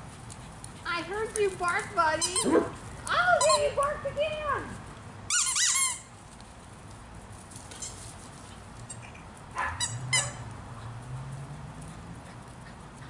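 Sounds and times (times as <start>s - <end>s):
dog yipping: 5.3s - 6.0s, 9.6s - 10.4s.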